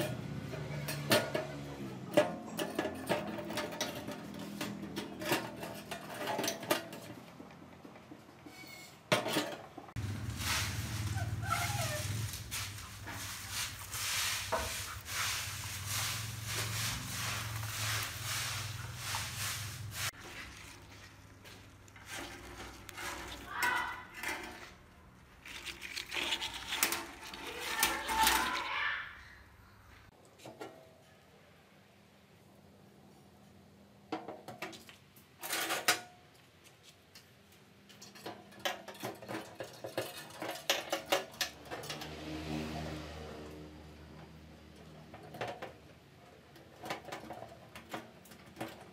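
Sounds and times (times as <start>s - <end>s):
hands rustling plant leaves: 10.0s - 23.6s.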